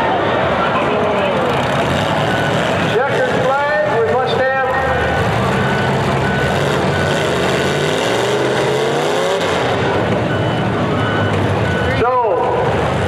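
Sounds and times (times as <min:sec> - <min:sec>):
car engines running: 0:00.0 - 0:13.0
engine revving up: 0:01.4 - 0:04.0, 0:04.7 - 0:11.8
short high beeps: 0:09.6 - 0:12.2.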